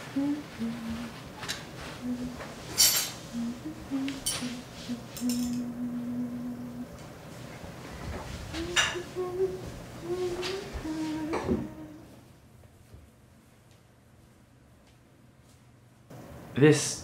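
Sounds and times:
metal cutlery clinking: 2.7 - 3.2
soft low tune: 3.4 - 7.0.

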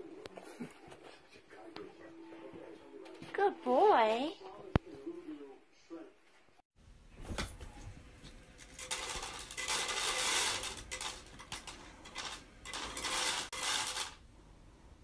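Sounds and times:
dry kibble rattling into tray: 8.6 - 14.2.

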